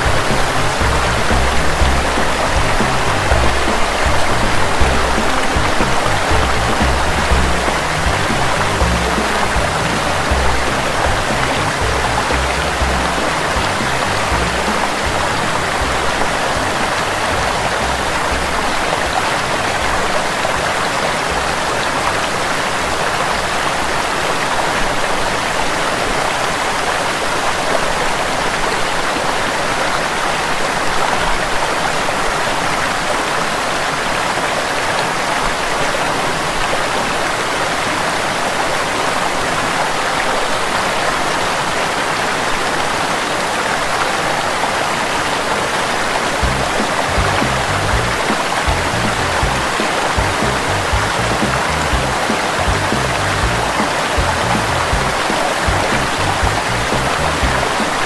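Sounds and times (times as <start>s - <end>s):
small waterfall rushing: 0.0s - 58.0s.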